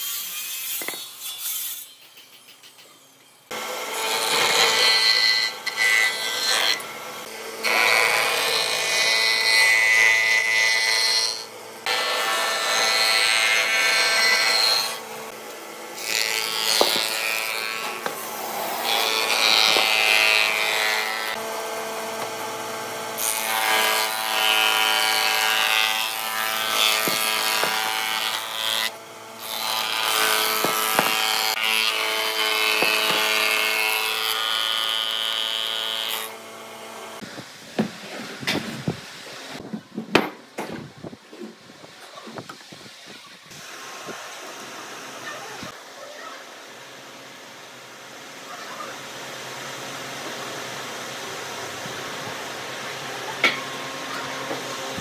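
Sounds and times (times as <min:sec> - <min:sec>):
planer cutting wood: 0:03.5 - 0:37.3
wood planer motor whine: 0:03.5 - 0:37.4, 0:46.4 - 0:55.0.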